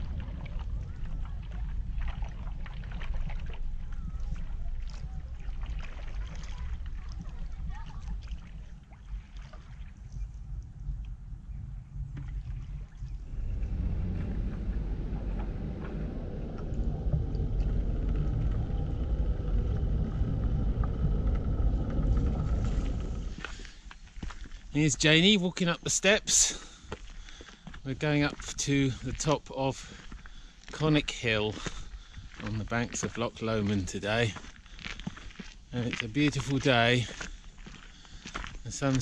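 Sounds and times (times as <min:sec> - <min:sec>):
paddle splashing through water: 0:00.0 - 0:10.4, 0:12.1 - 0:24.7
steady low rumble: 0:10.0 - 0:27.1
faint steady whine: 0:13.0 - 0:24.8.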